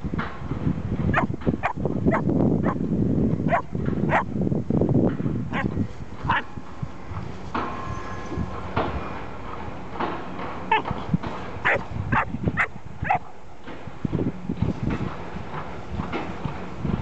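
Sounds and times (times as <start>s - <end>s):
wind rumble on microphone: 0.0s - 17.0s
dogs yapping: 1.1s - 2.8s, 3.5s - 4.3s, 5.5s - 6.5s, 10.7s - 11.0s, 11.6s - 13.4s.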